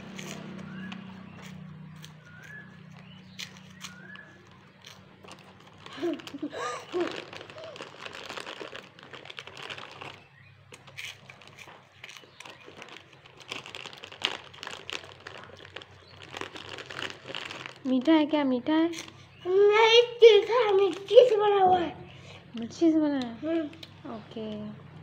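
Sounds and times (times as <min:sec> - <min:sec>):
plastic packet crinkling: 0:00.0 - 0:18.3.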